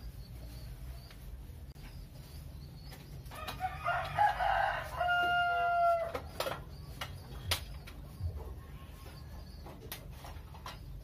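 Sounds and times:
rooster crowing: 0:03.4 - 0:06.2.

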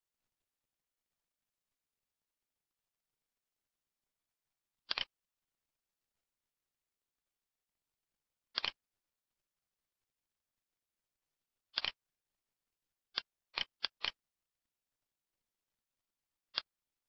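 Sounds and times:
computer mouse clicks: 0:04.9 - 0:05.2, 0:08.5 - 0:08.8, 0:11.7 - 0:12.0, 0:13.1 - 0:14.2, 0:16.5 - 0:16.8.

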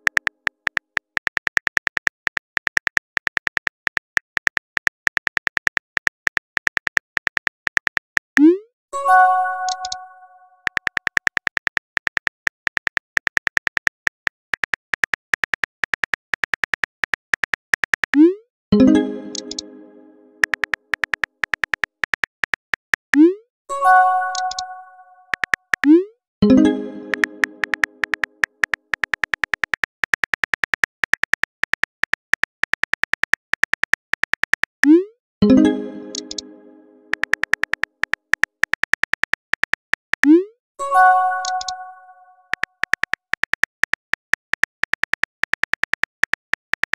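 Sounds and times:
phone keyboard typing clicks: 0:00.0 - 0:08.3, 0:09.6 - 0:10.0, 0:10.6 - 0:18.3, 0:19.2 - 0:19.7, 0:20.4 - 0:23.3, 0:24.2 - 0:36.5, 0:37.1 - 0:40.5, 0:41.3 - 0:41.9, 0:42.5 - 0:46.9
ringing pop-like tone: 0:08.4 - 0:10.4, 0:18.2 - 0:20.5, 0:23.2 - 0:25.4, 0:26.4 - 0:28.4, 0:34.9 - 0:37.4, 0:40.3 - 0:42.3.

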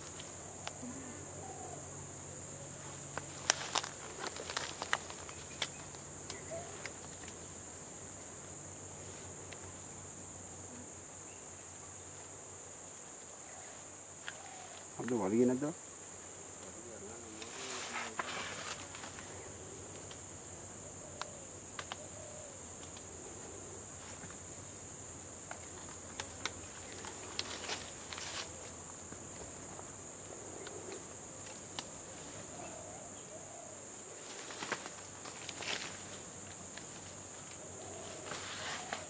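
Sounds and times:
footsteps through undergrowth: 0:03.0 - 0:07.4, 0:17.3 - 0:19.4, 0:25.6 - 0:29.6, 0:34.2 - 0:39.0.

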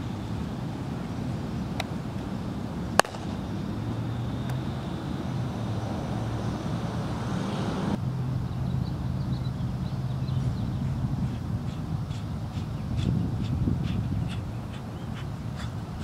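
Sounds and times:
distant traffic rumble: 0:00.0 - 0:16.0
baseball smacking into glove: 0:03.0 - 0:03.4.

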